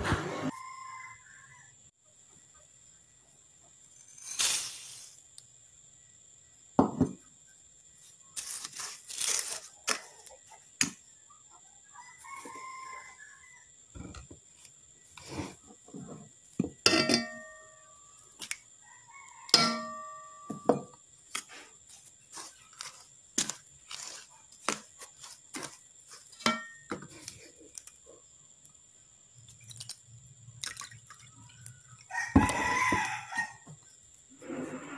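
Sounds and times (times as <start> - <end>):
spoon and bowls knocking on pot: 16.6 - 17.8, 19.5 - 21.0, 26.4 - 27.0.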